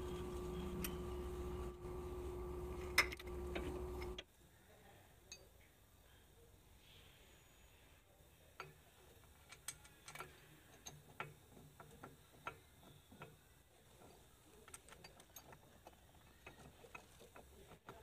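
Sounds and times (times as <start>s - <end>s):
metal clicks and taps: 8.6s - 13.4s.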